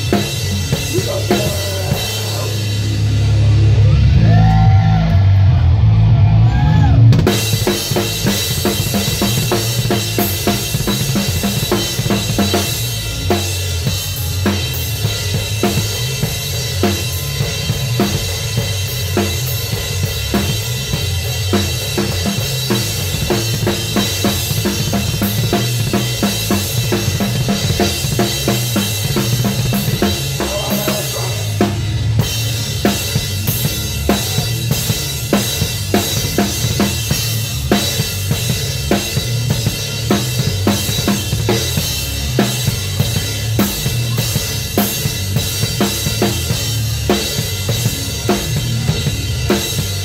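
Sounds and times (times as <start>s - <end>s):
drum kit: 0.0s - 50.0s
live band playing loud: 0.0s - 50.0s.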